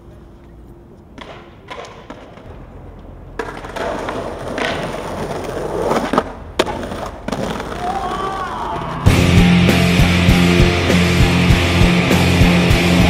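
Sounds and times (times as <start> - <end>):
skateboard clacking on steps: 1.0 - 8.2
skateboard wheels rolling on stone: 1.0 - 9.0.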